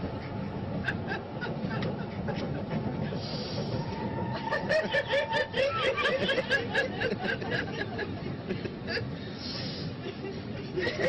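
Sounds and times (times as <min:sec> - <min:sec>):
metro carriage rumble: 0:00.0 - 0:11.0
woman laughing: 0:04.4 - 0:09.2, 0:10.0 - 0:11.0.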